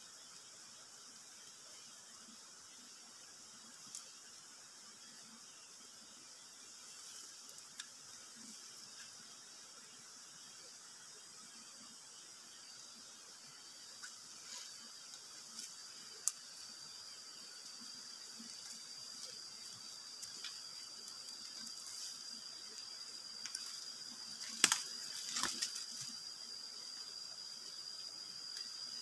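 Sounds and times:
high-pitched insect drone: 0.0 - 29.0
rustling in dry leaves and twigs: 6.8 - 7.8, 13.9 - 26.4.

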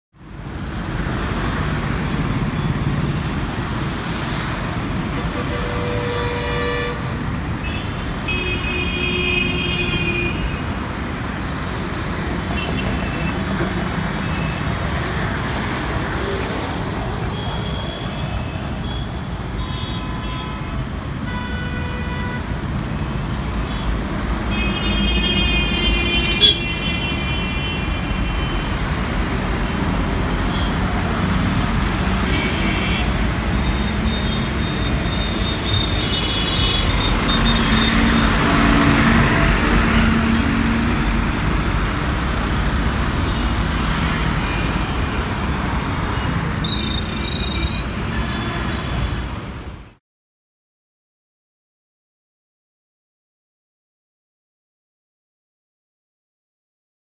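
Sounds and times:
busy road traffic: 0.1 - 50.0
vehicle horns honking: 5.1 - 10.7, 24.5 - 28.8.

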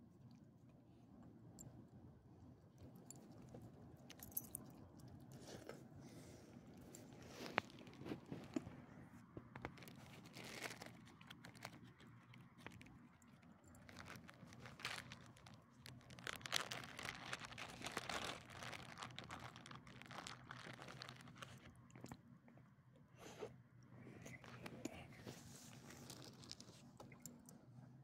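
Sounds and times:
dogs chewing and crunching: 9.5 - 22.2.

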